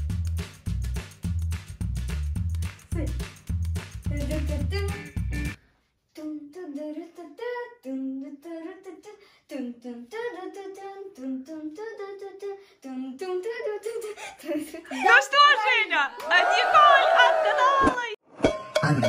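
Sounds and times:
music track: 0.0s - 5.6s
child singing unaccompanied: 2.9s - 3.2s, 4.0s - 5.2s, 6.1s - 15.0s.

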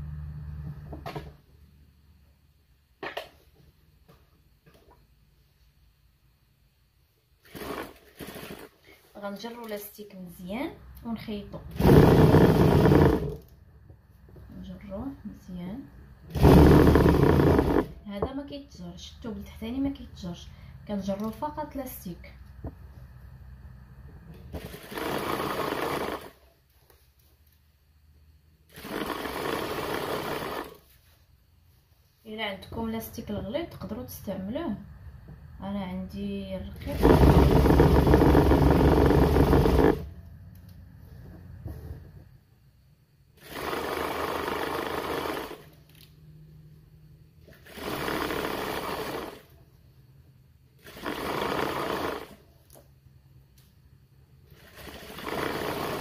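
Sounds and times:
industrial sewing machine running: 7.5s - 8.7s, 11.7s - 13.5s, 16.3s - 17.9s, 24.6s - 26.3s, 28.8s - 30.8s, 36.9s - 40.1s, 43.4s - 45.7s, 47.6s - 49.5s, 50.8s - 52.4s, 54.6s - 56.0s.

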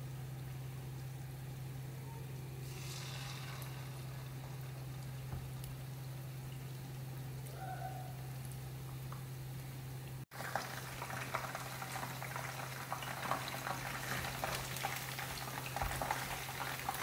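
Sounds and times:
steady low hum: 0.0s - 10.2s
chicken frying in oil: 0.0s - 17.0s.

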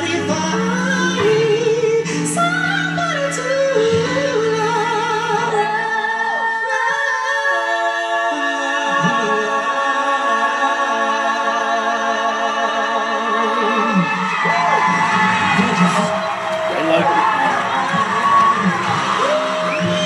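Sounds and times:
group singing in harmony: 0.0s - 20.0s.

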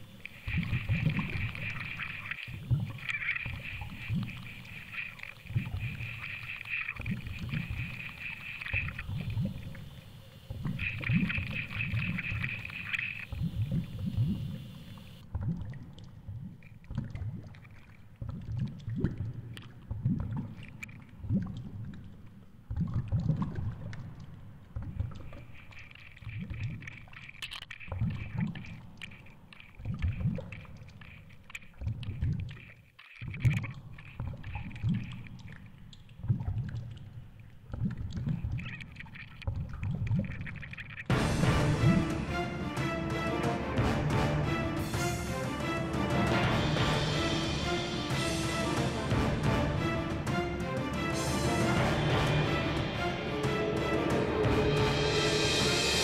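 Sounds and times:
faint high whine: 0.0s - 15.2s
muffled underwater water rushing: 0.0s - 56.0s.

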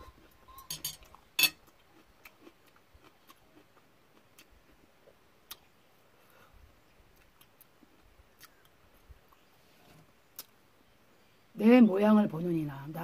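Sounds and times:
quiet chewing: 0.0s - 10.6s.

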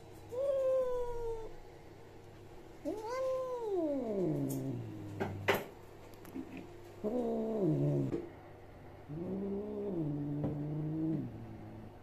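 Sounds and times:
cat yowling: 0.3s - 1.6s, 2.8s - 4.9s.

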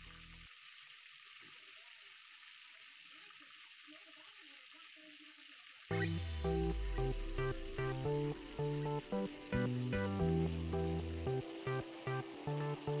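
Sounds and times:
chicken sizzling in hot oil: 0.0s - 13.0s
background music: 5.9s - 13.0s.

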